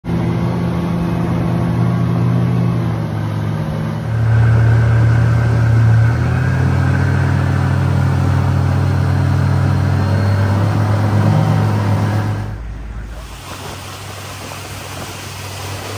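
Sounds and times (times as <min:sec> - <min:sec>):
wind: 0:00.0 - 0:15.9
outboard motor running: 0:00.1 - 0:15.9
water rushing along hull: 0:00.1 - 0:15.9.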